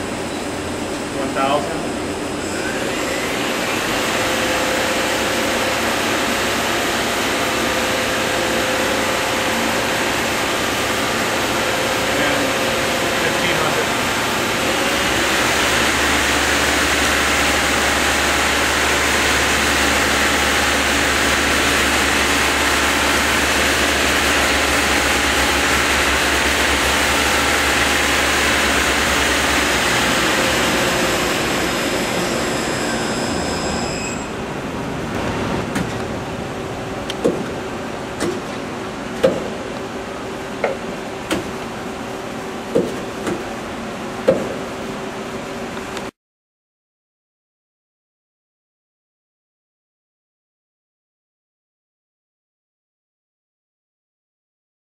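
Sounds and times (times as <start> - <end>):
lathe spindle whirring: 0.1 - 35.1.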